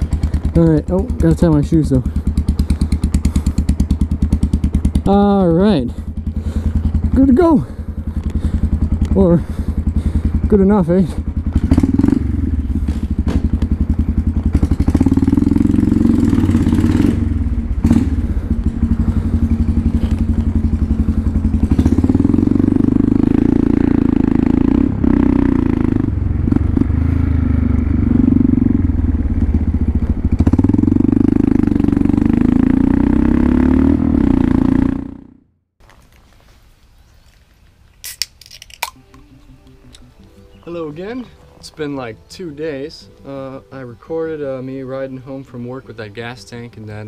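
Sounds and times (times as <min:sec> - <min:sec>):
motorcycle engine accelerating: 0:00.0 - 0:35.7.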